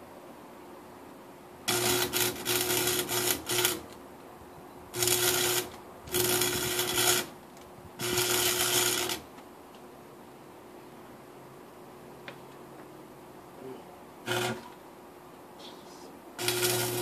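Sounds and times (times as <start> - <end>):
arc welder crackling and buzzing: 1.6 - 4.0, 4.9 - 9.8, 14.2 - 14.8, 16.4 - 17.0.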